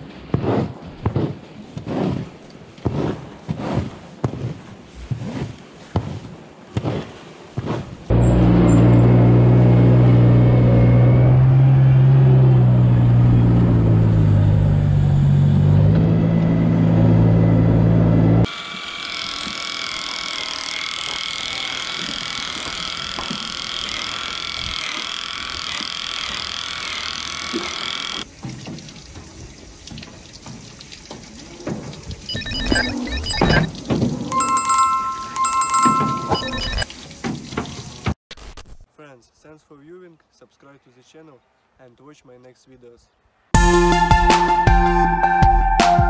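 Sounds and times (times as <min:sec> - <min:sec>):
diesel engine running: 0:08.1 - 0:18.5
angle grinder whine: 0:18.5 - 0:28.2.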